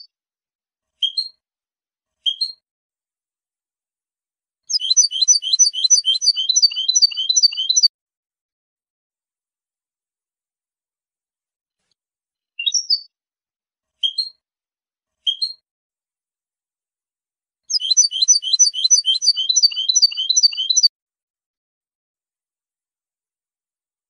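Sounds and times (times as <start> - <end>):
goldfinch singing: 4.7 - 7.9, 17.7 - 20.9.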